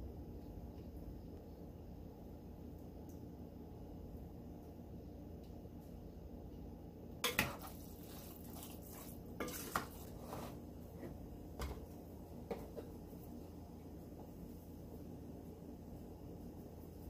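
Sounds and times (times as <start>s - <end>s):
spoon scraping ceramic bowl: 7.3s - 10.6s.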